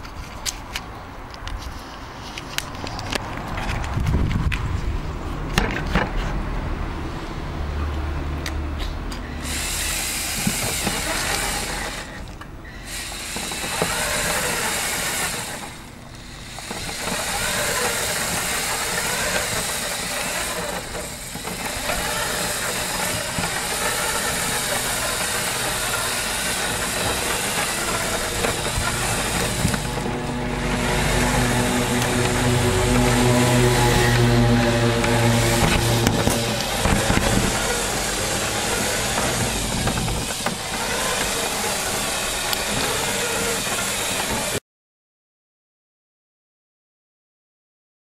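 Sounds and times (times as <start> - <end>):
toy truck electric motors and gears: 7.9 - 44.6.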